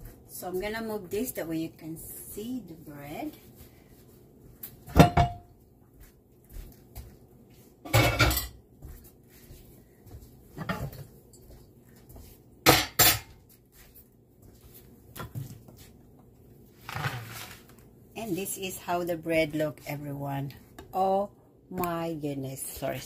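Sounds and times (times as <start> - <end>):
pots and dishes clattering: 4.9 - 5.5, 7.9 - 8.6, 12.7 - 13.4.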